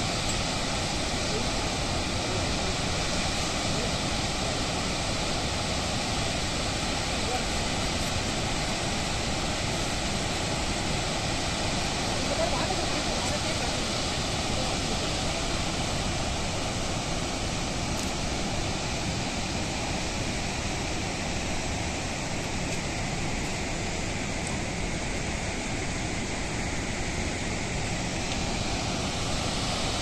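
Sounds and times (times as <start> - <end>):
waterfall rushing: 0.0 - 30.0.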